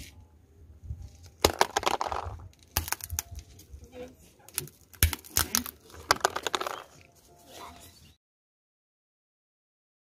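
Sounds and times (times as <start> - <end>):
phone screen cracking under tyre: 1.4 - 3.4, 4.5 - 7.0.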